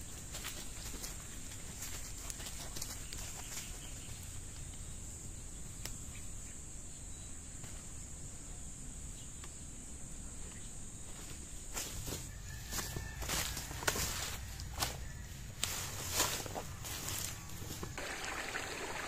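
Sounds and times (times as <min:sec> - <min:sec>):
faint clicks and rustles: 0:00.0 - 0:04.9
insects buzzing: 0:00.0 - 0:19.0.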